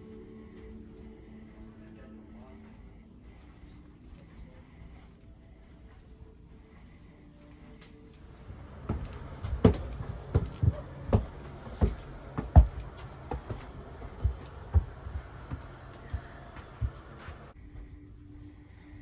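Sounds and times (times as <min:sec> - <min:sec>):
faint steady hum: 0:00.0 - 0:19.0
footsteps climbing stairs: 0:08.2 - 0:17.6.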